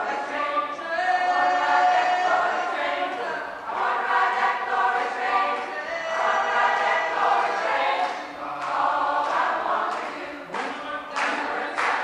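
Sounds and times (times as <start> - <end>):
chorus singing a gospel song: 0.0 - 12.0.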